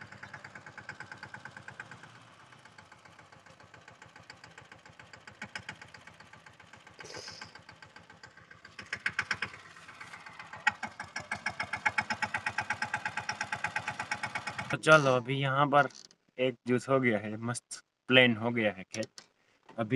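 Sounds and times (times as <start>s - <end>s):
engine running: 0.0s - 15.9s
short hiss: 7.0s - 7.6s.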